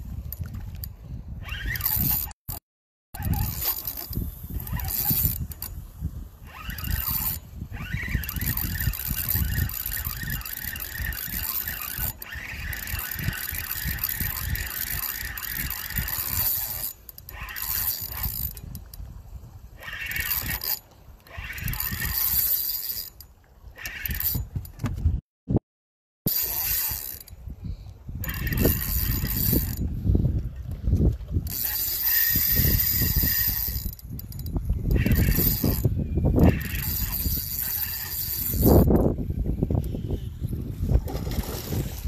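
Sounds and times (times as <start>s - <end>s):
fishing reel gears whirring: 0.2s - 2.6s, 3.2s - 24.7s, 26.3s - 42.0s
microphone handling rumble: 38.7s - 42.0s.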